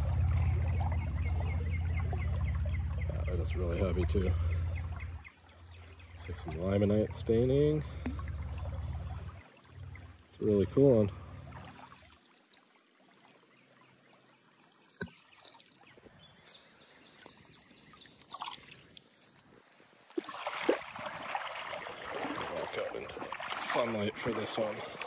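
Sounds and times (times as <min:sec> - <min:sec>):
water trickling: 0:00.0 - 0:16.0, 0:17.1 - 0:25.0.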